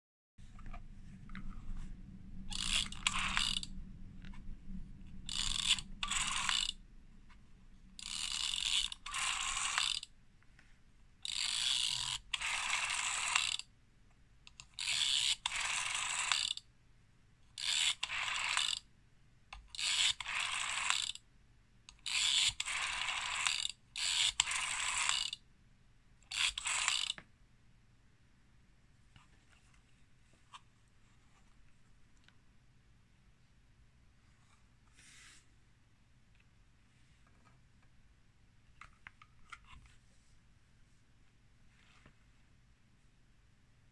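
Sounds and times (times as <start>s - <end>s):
rotary phone dial whirring: 2.5s - 4.4s, 5.2s - 6.8s, 8.0s - 10.1s, 11.2s - 13.7s, 14.5s - 16.6s, 17.5s - 18.8s, 19.6s - 21.2s, 21.9s - 25.4s, 26.3s - 27.2s.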